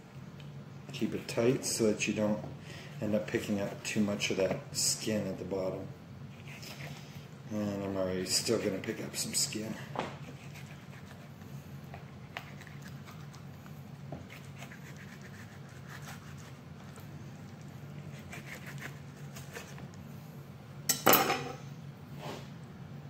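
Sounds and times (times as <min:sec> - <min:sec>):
steady low hum: 0:00.0 - 0:23.0
knife scratching on cutting board: 0:06.3 - 0:07.2, 0:10.2 - 0:17.1, 0:17.9 - 0:19.8.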